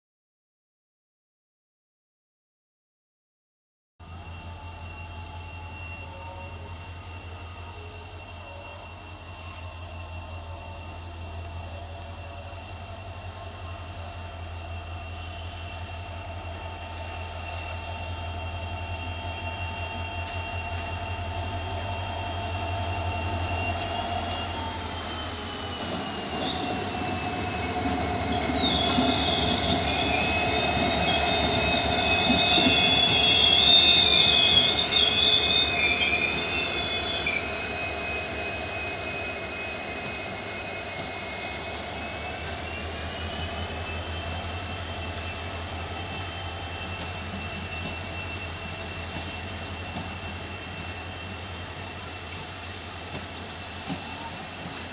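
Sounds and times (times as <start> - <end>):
diesel locomotive engine drone: 4.0 - 54.9
train rolling past: 4.0 - 54.9
wavering wheel squeal: 4.3 - 54.9
high whining tones: 14.7 - 54.9.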